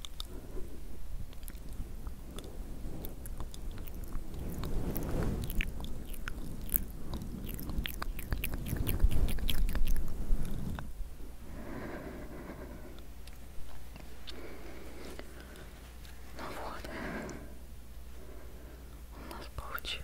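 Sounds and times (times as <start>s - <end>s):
wet mouth clicks: 0.0s - 0.4s, 1.3s - 10.9s, 13.0s - 14.4s
muffled low rumble: 0.0s - 20.0s.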